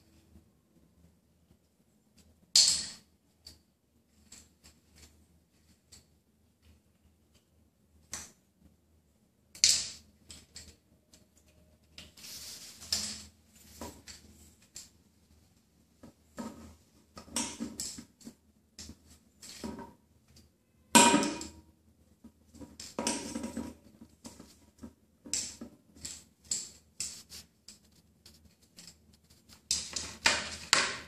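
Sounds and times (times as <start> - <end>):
toy scuffing on tiled floor: 12.1 - 14.2, 27.0 - 29.7.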